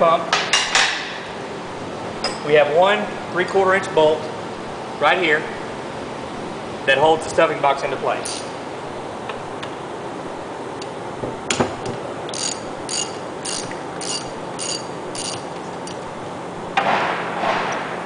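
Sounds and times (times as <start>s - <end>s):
ratchet wrench clicking: 8.2s - 8.5s, 12.3s - 16.0s.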